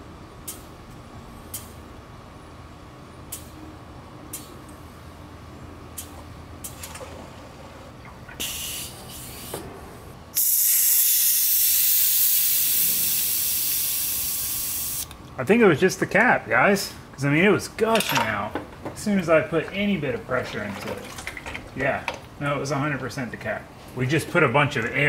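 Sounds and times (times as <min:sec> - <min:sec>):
air hissing out: 0:08.4 - 0:09.6, 0:10.3 - 0:15.0.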